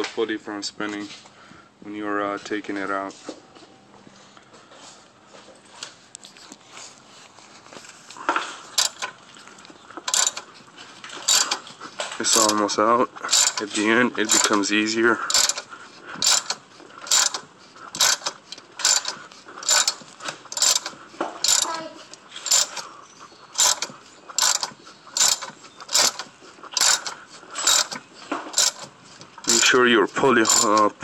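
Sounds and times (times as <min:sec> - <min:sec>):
ratchet wrench clicking: 0:08.8 - 0:09.1, 0:10.1 - 0:10.5, 0:11.2 - 0:11.6, 0:12.2 - 0:12.6, 0:13.3 - 0:14.7, 0:15.3 - 0:22.9, 0:23.6 - 0:28.9, 0:29.5 - 0:29.8, 0:30.4 - 0:31.0.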